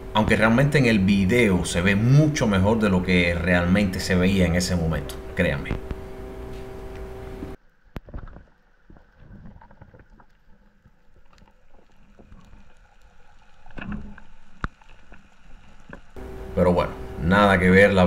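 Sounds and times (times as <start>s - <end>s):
underwater rumble: 0.0s - 17.6s
underwater clicks and crackles: 5.7s - 16.2s.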